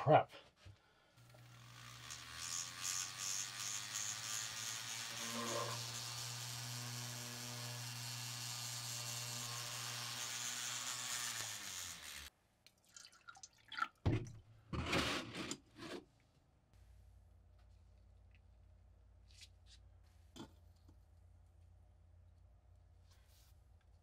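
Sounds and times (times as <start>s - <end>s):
rotary tool drilling plastic: 1.2s - 12.3s
water pouring into plastic cup: 12.7s - 14.0s.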